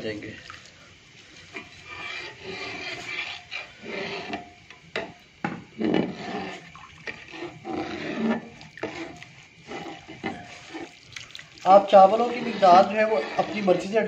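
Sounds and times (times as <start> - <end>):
rice splashing into milk: 6.0 - 13.3.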